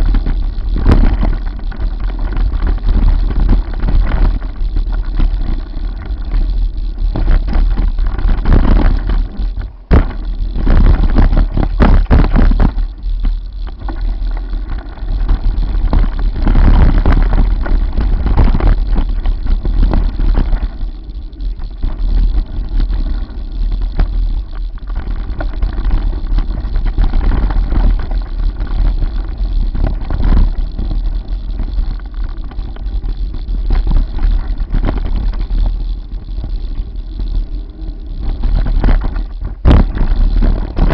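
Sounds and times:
bike knocks and rattles: 0:00.0 - 0:40.9
bike tyre noise: 0:00.0 - 0:40.9
wind rumble on microphone: 0:00.0 - 0:40.9.

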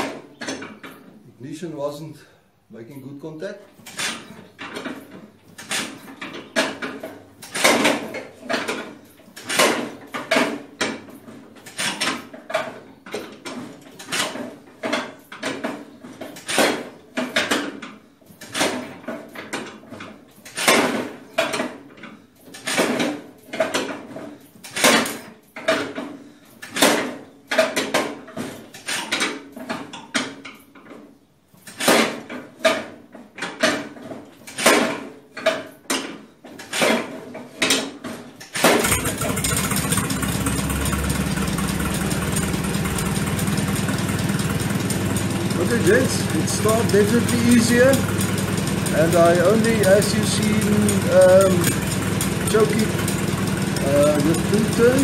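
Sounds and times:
engine cranking on starter: 0:38.4 - 0:55.0.

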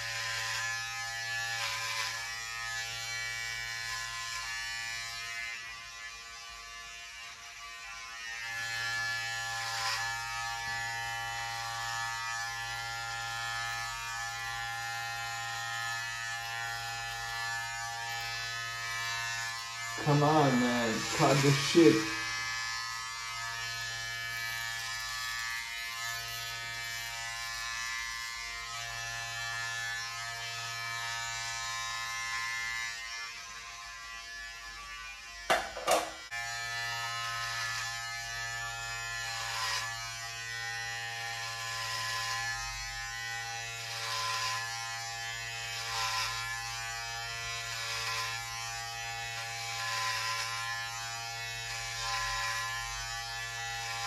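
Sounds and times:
electric hair clippers buzzing: 0:00.0 - 0:54.0
sharp knocks: 0:35.5 - 0:36.2.

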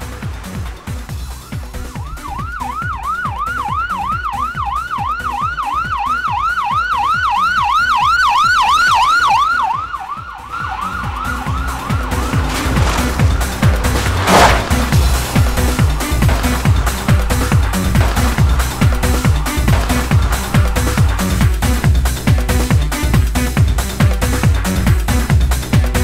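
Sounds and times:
police siren yelping: 0:01.4 - 0:13.0.

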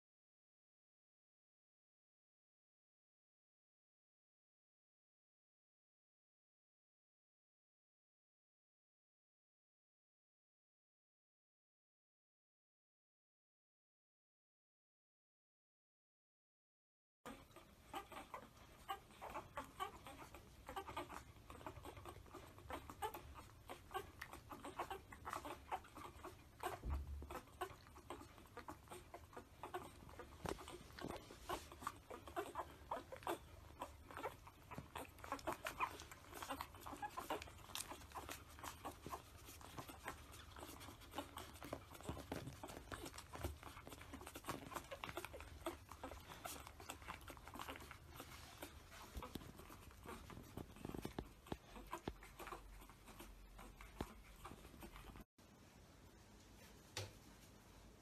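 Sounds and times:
puppies suckling and squeaking: 0:17.2 - 0:58.0.

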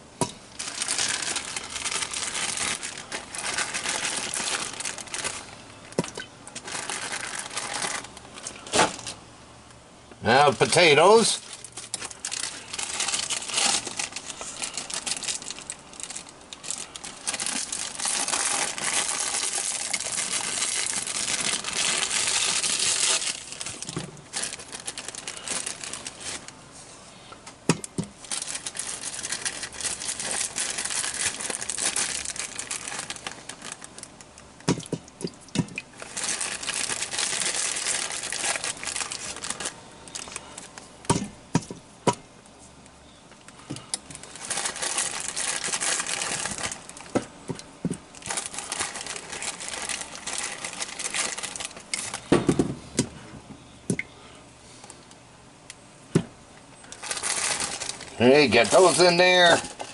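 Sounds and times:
plastic bag crinkling and tearing: 0:00.5 - 0:09.2, 0:10.3 - 0:26.6, 0:27.9 - 0:34.9, 0:35.5 - 0:41.2, 0:44.1 - 0:52.4, 0:56.9 - 0:59.9.

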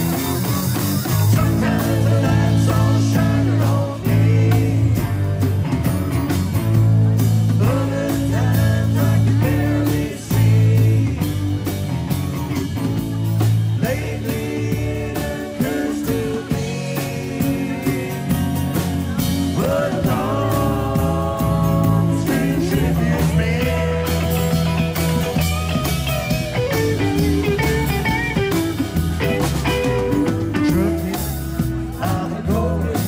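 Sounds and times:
live rock band playing: 0:00.0 - 0:33.0
person singing: 0:13.8 - 0:25.0.

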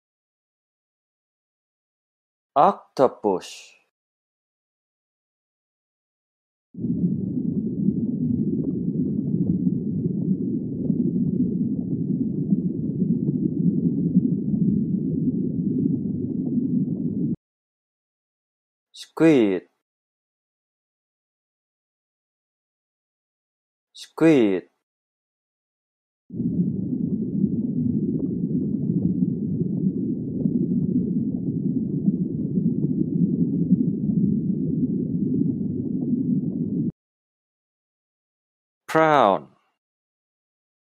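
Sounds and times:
underwater rumble of moving water: 0:06.8 - 0:17.4, 0:26.3 - 0:37.0.

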